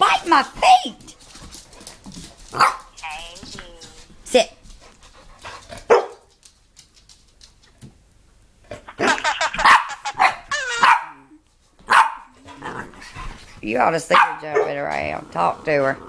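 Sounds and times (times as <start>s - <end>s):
dog barking: 2.6s - 2.9s, 5.9s - 6.3s, 9.6s - 11.3s, 11.9s - 12.4s, 14.1s - 14.8s
dog yowling: 9.6s - 11.3s.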